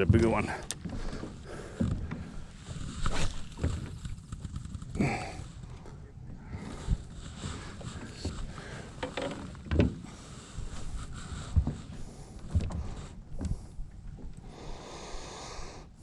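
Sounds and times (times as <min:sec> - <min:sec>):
low rumbling background: 0:00.0 - 0:16.0.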